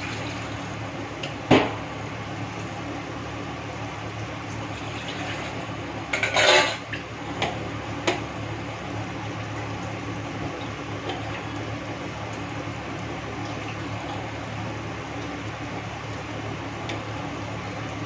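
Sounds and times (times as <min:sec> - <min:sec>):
steady low hum: 0:00.0 - 0:18.0
kitchen utensils rattling: 0:06.2 - 0:06.8.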